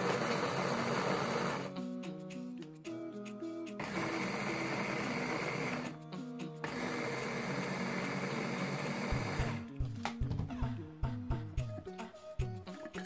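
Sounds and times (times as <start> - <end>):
electric chopper grinding cookies: 0.0 - 1.8, 3.8 - 6.0, 6.6 - 9.6
background music: 0.9 - 13.0.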